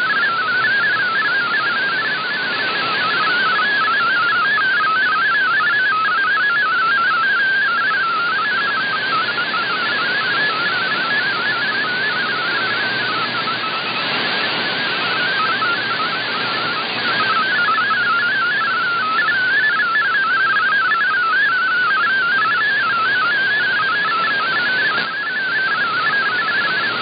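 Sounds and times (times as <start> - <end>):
digital data tone: 0.0 - 27.0
radio band hiss: 7.0 - 20.8, 21.6 - 27.0.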